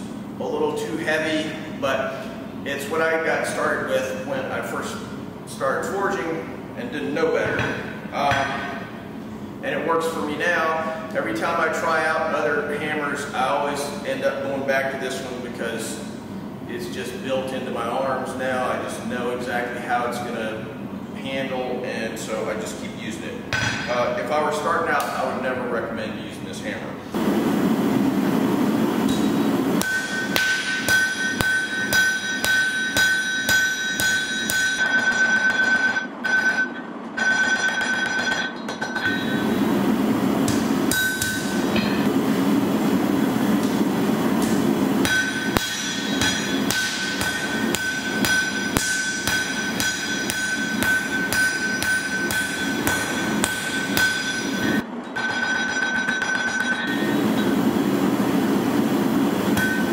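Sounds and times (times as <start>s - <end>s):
hammer striking steel on anvil: 23.5s - 24.0s, 29.1s - 36.6s, 40.5s - 42.1s, 44.4s - 57.2s, 59.5s - 59.9s
anvil ringing: 29.1s - 39.4s, 40.9s - 42.1s, 45.0s - 57.2s, 59.6s - 59.9s.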